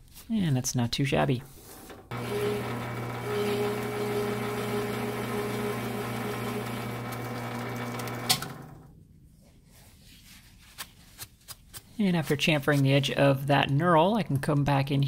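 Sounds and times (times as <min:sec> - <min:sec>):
metal lathe humming: 0:01.9 - 0:08.8.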